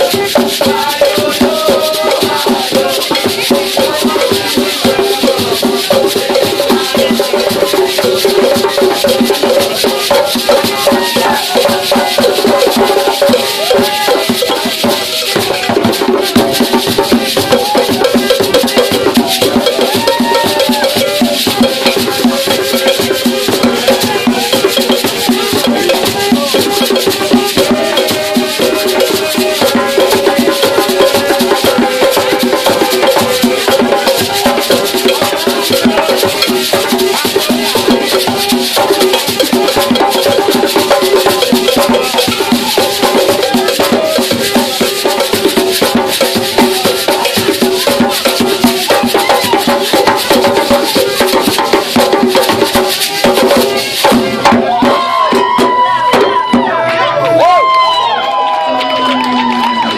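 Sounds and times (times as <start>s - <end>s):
gourd shakers rattling: 0.0s - 54.5s
voices singing: 0.0s - 57.2s
hand drums driving rhythm: 0.0s - 59.9s
hand claps: 56.8s - 59.9s.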